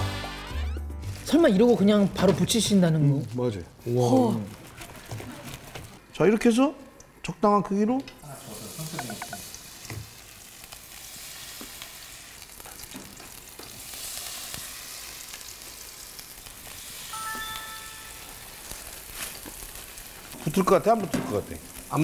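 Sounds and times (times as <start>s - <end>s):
batter sizzling in oil: 8.2s - 22.0s.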